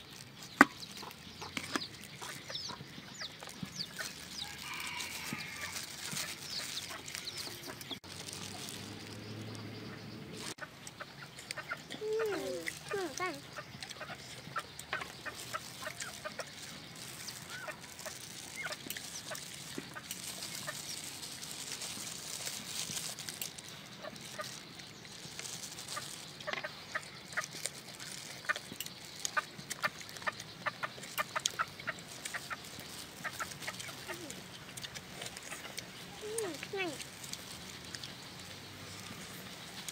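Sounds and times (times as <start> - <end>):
chickens clucking: 0.1 - 22.6, 23.4 - 39.9
lip-smacking and chewing: 25.1 - 38.2.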